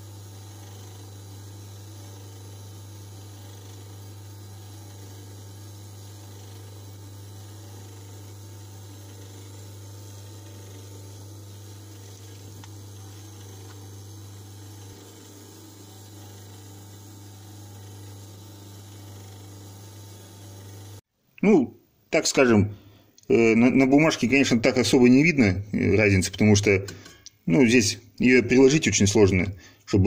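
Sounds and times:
electric motor humming: 0.0s - 21.0s.

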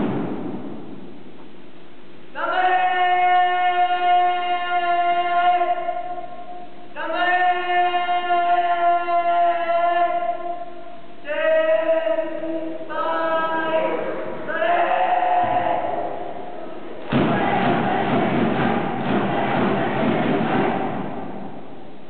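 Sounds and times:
loud burst of noise with thumps: 0.0s - 1.8s, 17.0s - 22.0s
group chanting a cheer: 13.1s - 21.7s.

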